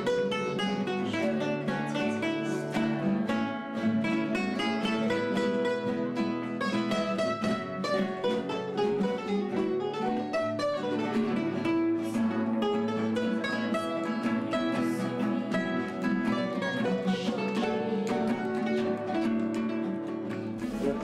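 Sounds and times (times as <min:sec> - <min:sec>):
classical guitars strumming chords: 0:00.0 - 0:21.0.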